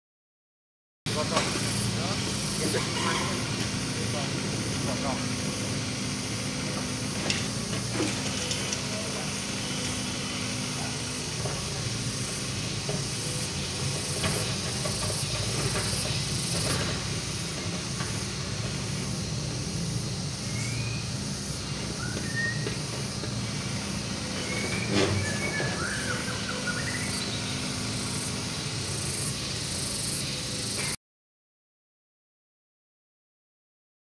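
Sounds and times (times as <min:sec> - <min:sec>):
excavator diesel engine running: 0:01.1 - 0:31.0.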